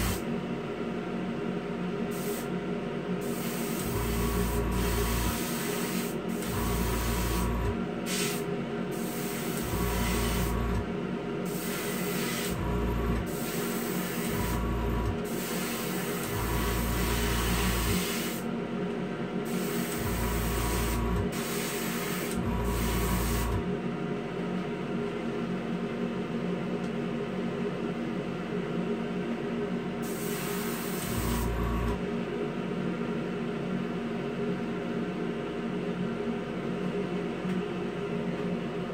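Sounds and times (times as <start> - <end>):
compressor hum: 0.0 - 38.9
exhaust fan: 0.0 - 38.9
airbrush spraying hiss: 2.1 - 2.5, 3.2 - 4.0, 4.8 - 6.2, 8.1 - 9.6, 11.5 - 12.5, 17.9 - 18.4, 30.0 - 31.4.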